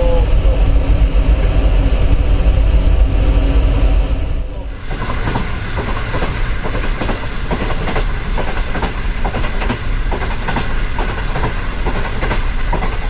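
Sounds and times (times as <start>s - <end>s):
steady low rumble: 0.0s - 6.8s
train wheels clacking on rail joints: 4.8s - 13.0s.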